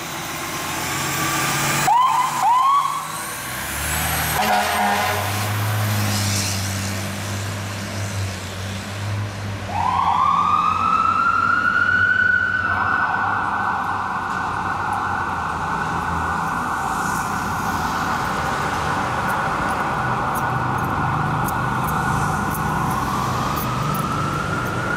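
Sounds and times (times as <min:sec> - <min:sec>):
fire engine siren: 0:00.0 - 0:07.0, 0:09.6 - 0:24.9
diesel engine rumbling: 0:00.0 - 0:11.9, 0:12.6 - 0:24.9.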